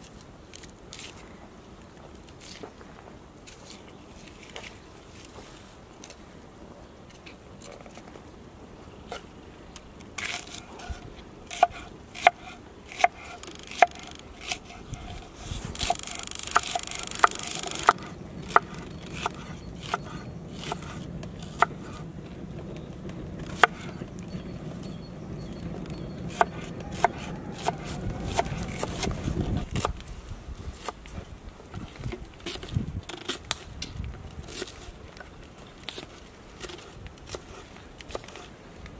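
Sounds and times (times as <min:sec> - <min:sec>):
knife chopping on wooden board: 0:26.3 - 0:29.2.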